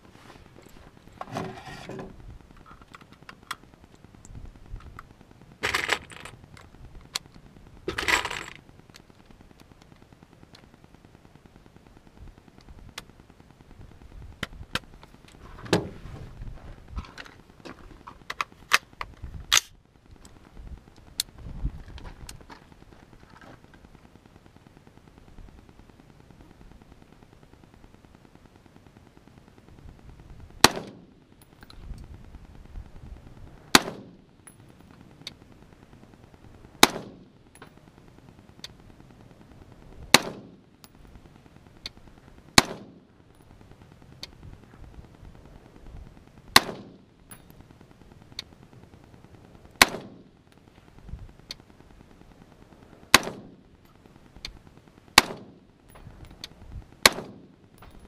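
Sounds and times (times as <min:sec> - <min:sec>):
rifle shots with echo: 0:30.6 - 0:31.1, 0:33.7 - 0:34.2, 0:36.8 - 0:37.3, 0:40.1 - 0:40.7, 0:42.6 - 0:43.1, 0:46.5 - 0:47.1, 0:49.8 - 0:50.3, 0:53.1 - 0:53.7, 0:55.2 - 0:55.7, 0:57.0 - 0:58.0.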